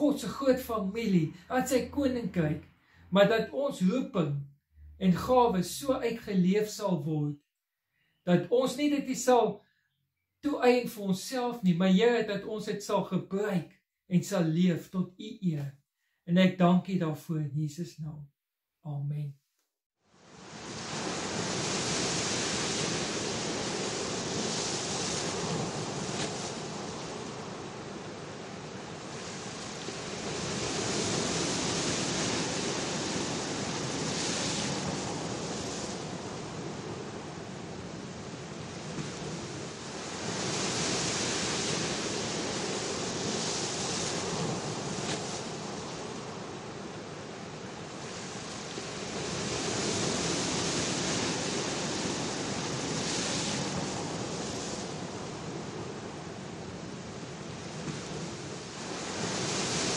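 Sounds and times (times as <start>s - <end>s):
ocean waves breaking: 20.2s - 59.9s
sea surf washing onto beach: 20.2s - 59.9s.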